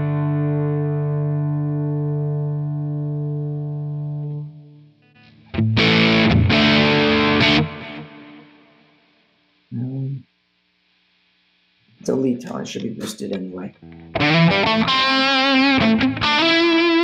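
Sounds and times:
crunchy electric guitar chord: 0.0s - 9.0s, 13.8s - 17.0s
loud distorted guitar chords: 0.0s - 9.1s, 13.8s - 17.0s.

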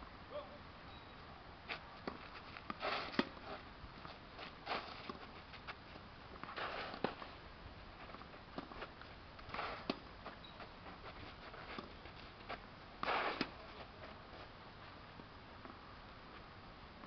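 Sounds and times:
shoes sliding on clay: 1.7s - 15.0s.

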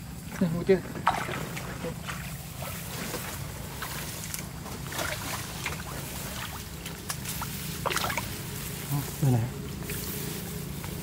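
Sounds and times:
water sloshing: 0.4s - 8.8s
small water splashes: 1.0s - 8.5s.

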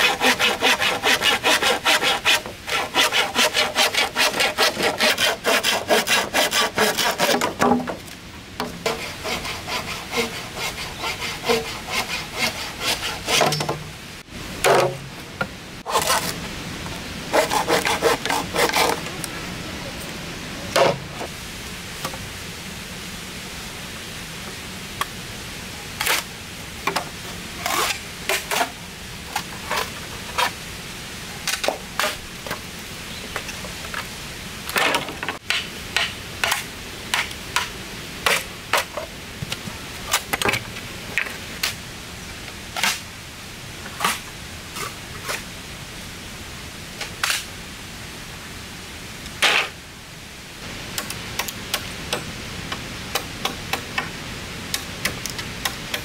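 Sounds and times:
steady hiss: 0.0s - 56.0s.

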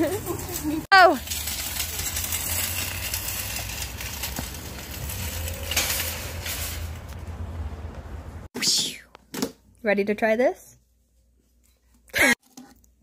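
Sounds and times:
shopping cart rattling on asphalt: 0.0s - 7.2s.

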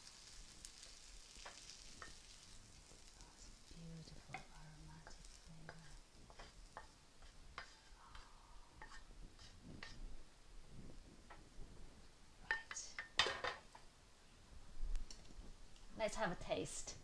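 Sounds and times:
spatula scraping and tapping wok: 0.0s - 10.1s, 12.4s - 13.8s
faint sizzling: 0.0s - 17.0s.

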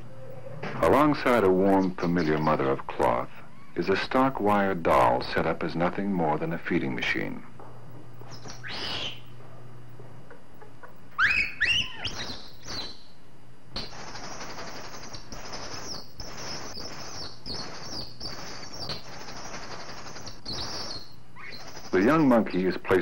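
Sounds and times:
faint low hum: 0.0s - 23.0s
monkey squealing and chirping: 8.3s - 9.3s, 11.1s - 13.0s, 13.8s - 22.2s.

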